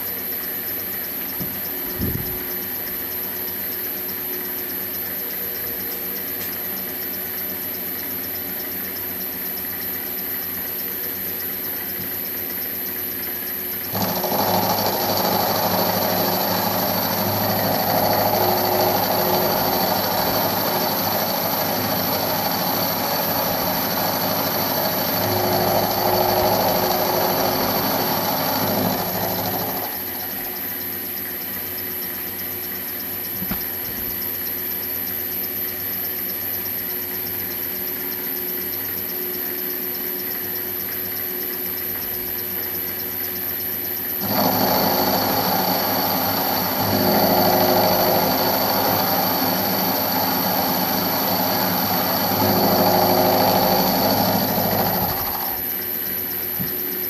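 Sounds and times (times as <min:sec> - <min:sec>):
milling machine running hum: 0:05.8 - 0:34.7, 0:44.0 - 0:57.0
end mill cutting metal: 0:14.0 - 0:30.7, 0:44.2 - 0:55.8.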